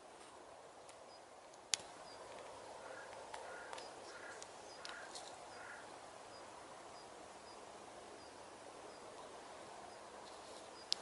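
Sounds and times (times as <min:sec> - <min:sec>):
faint clicks: 0:00.8 - 0:05.8, 0:10.2 - 0:11.0
distant crow cawing: 0:02.7 - 0:06.0.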